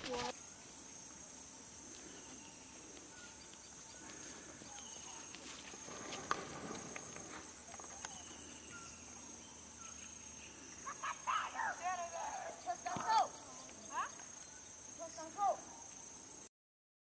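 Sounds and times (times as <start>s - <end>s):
insects trilling: 0.0s - 16.5s.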